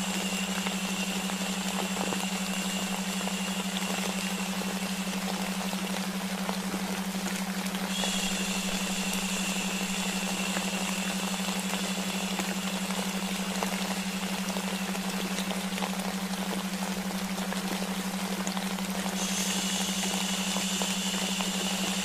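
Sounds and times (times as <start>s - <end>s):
faint high whine: 0.0s - 16.6s, 19.0s - 22.0s
low steady hum: 0.0s - 22.0s
white noise hiss: 0.0s - 22.0s.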